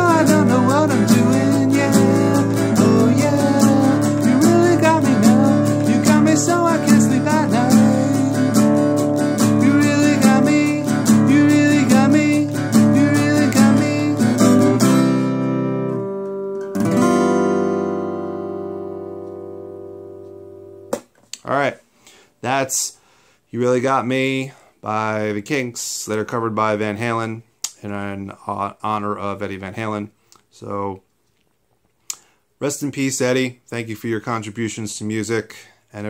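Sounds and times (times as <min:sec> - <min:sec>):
acoustic guitar strumming: 0:00.0 - 0:21.0.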